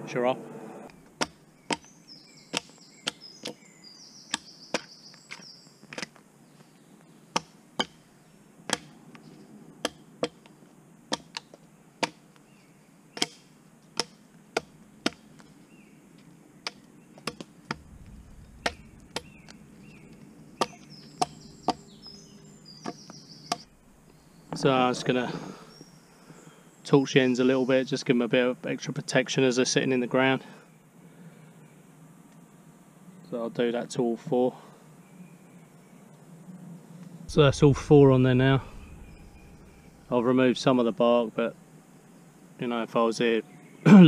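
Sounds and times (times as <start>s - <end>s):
axe chopping wood: 1.2s - 1.9s, 2.5s - 3.6s, 4.3s - 5.4s, 7.3s - 8.0s, 8.7s - 9.0s, 9.8s - 10.4s, 11.1s - 12.3s, 13.2s - 15.5s, 16.6s - 17.8s, 18.6s - 19.4s, 20.6s - 21.8s, 22.8s - 23.7s.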